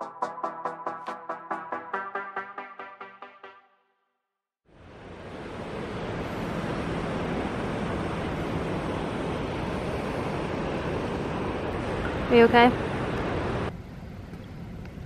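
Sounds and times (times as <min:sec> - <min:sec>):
wind: 0:04.6 - 0:15.0
ocean surf rushing: 0:04.8 - 0:13.7.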